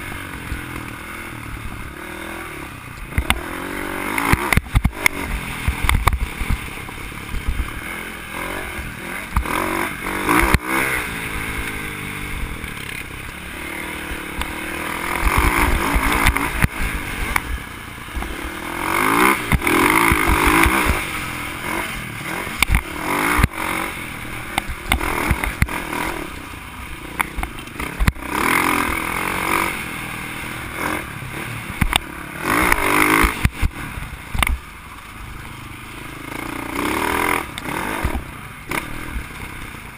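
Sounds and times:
dirt bike engine revving: 0.0 - 39.9
bike knocking and rattling: 3.0 - 10.9, 14.2 - 21.2, 24.4 - 26.2.

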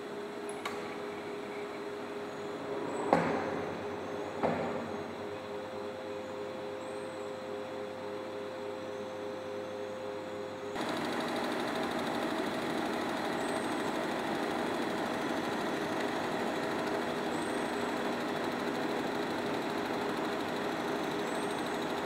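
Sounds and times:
film projector clatter: 10.8 - 22.0.

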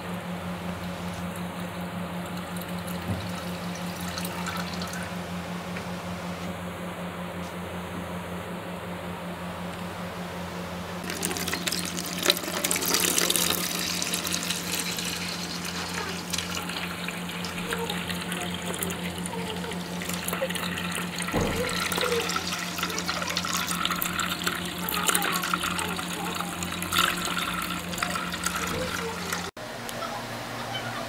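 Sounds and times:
steady low hum: 0.0 - 31.0
water pouring into plastic bucket: 2.3 - 5.1, 11.0 - 29.5.

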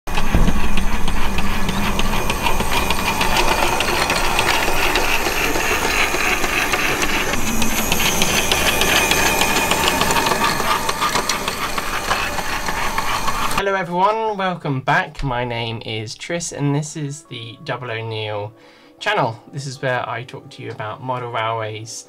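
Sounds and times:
model train motor hum: 0.1 - 13.6
wheels clicking on rails: 0.1 - 13.6.

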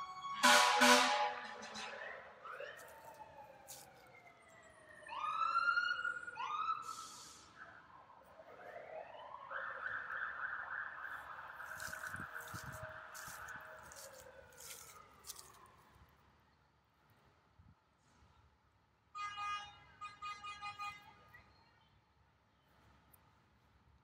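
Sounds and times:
fire truck sirens wailing: 0.0 - 16.0.

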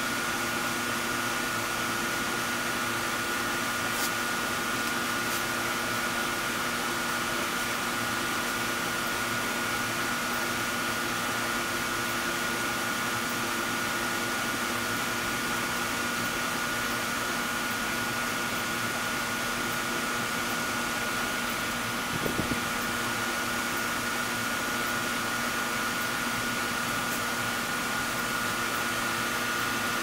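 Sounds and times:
mechanical fan whirring: 0.0 - 30.0.

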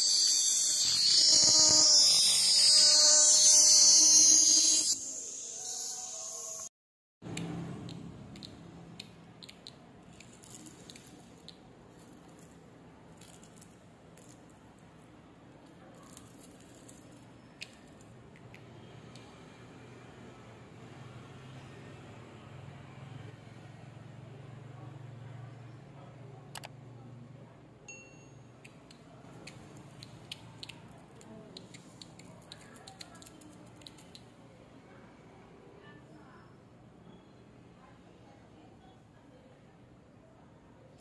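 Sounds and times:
cicada clicking and ticking: 0.1 - 6.6, 28.6 - 30.9.

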